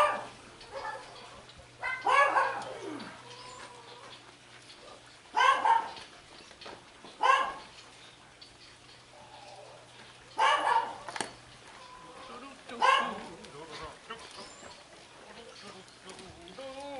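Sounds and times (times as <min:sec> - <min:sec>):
dog barking: 0:00.0 - 0:01.2, 0:01.8 - 0:02.7, 0:05.3 - 0:06.0, 0:07.2 - 0:07.6, 0:10.4 - 0:11.1, 0:12.8 - 0:13.3.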